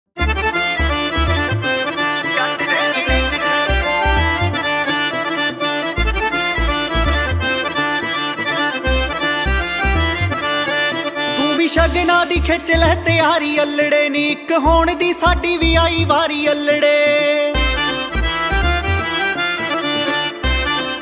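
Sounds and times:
held melodic notes: 0.2s - 12.4s.

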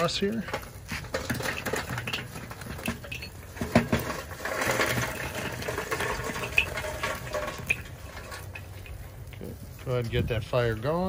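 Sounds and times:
charcoal clattering onto grill: 0.0s - 10.9s.

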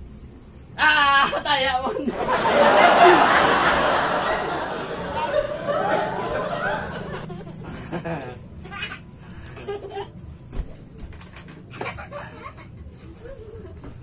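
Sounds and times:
children giggling and laughing: 2.1s - 8.9s.

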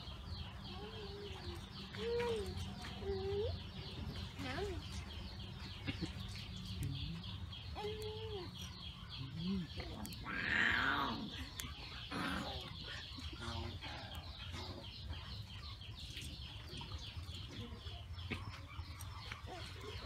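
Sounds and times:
chickens clucking: 11.2s - 20.0s.

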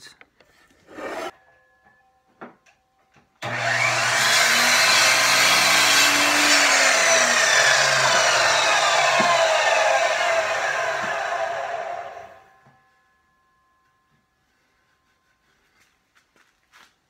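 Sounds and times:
miter saw cutting wood: 3.4s - 12.5s.

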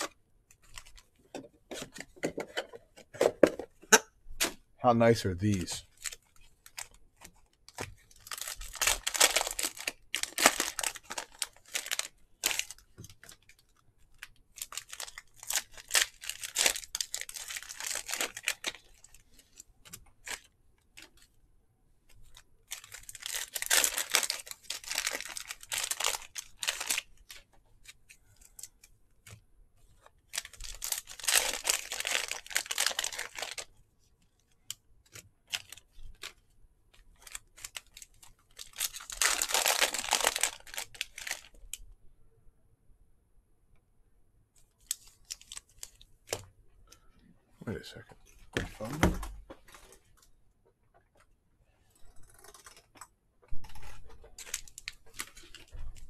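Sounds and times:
foil wrappers tearing and crinkling: 7.7s - 13.7s, 14.6s - 19.2s, 22.7s - 27.4s, 30.3s - 33.7s, 37.2s - 41.6s, 53.6s - 55.8s.

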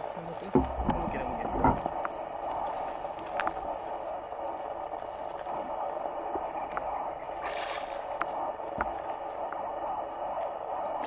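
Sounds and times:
outdoor background hum: 0.0s - 11.0s.

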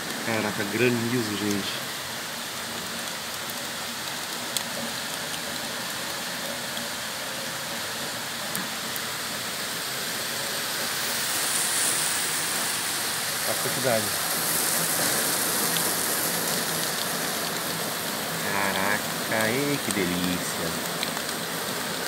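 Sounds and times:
heavy rain pouring: 0.0s - 22.0s
hail ticking: 11.2s - 22.0s.

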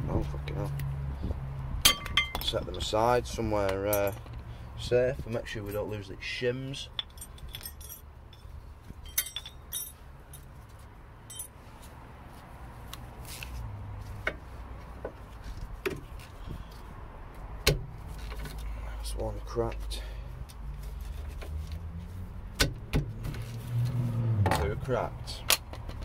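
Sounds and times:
metal hand tools clinking: 3.8s - 4.4s, 6.8s - 10.5s, 11.2s - 11.6s.

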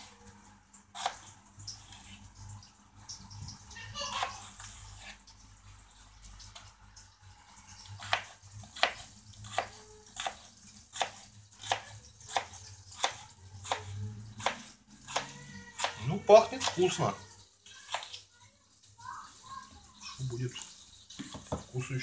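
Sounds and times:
knife chopping on wooden board: 8.0s - 16.0s.

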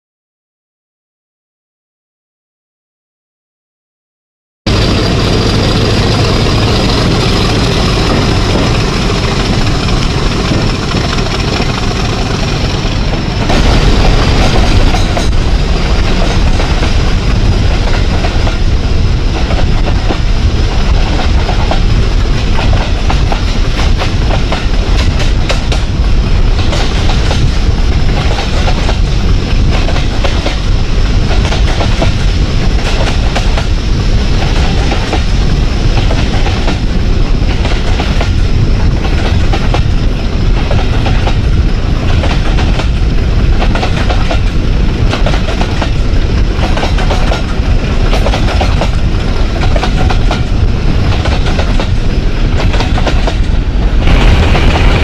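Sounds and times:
diesel locomotive working hard: 4.7s - 55.0s
wind buffeting microphone: 4.7s - 55.0s
wheels clacking over rail joints: 4.8s - 33.8s, 40.6s - 55.0s.

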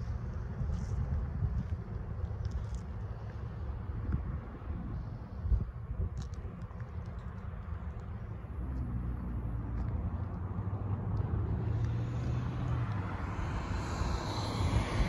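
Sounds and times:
car driving past: 8.6s - 15.0s.

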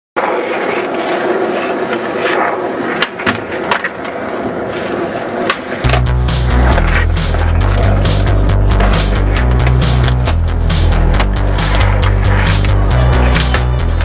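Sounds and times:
skateboard popping and landing: 0.2s - 14.0s
skateboard wheels rolling: 0.2s - 14.0s
electronic music with steady beat: 5.8s - 14.0s.

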